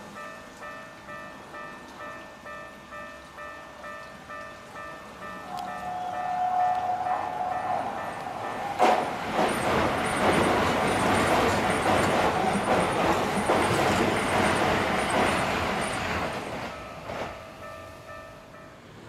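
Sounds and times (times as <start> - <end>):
train wheels rushing on rail: 3.8 - 19.0.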